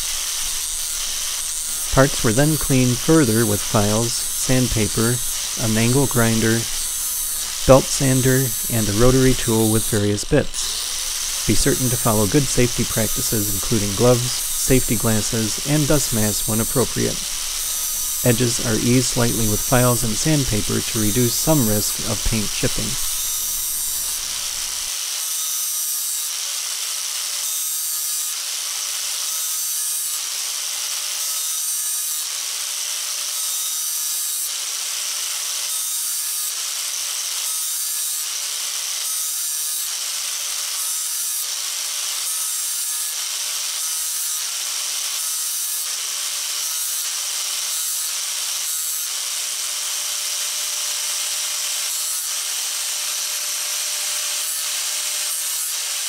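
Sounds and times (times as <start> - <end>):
angle grinder grinding metal: 0.0 - 56.0.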